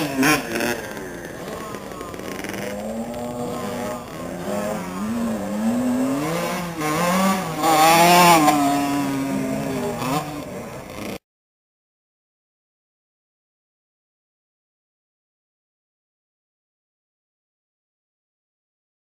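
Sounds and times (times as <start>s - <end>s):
motocross bike engines revving: 0.0s - 11.2s.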